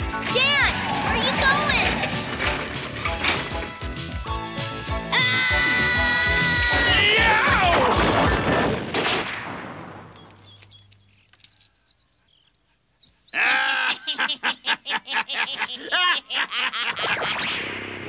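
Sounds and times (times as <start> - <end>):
cartoon crash: 0.2 - 3.6, 5.1 - 9.9, 17.0 - 18.0
faint bird chirps: 10.2 - 13.5
man laughing loudly: 13.4 - 17.5.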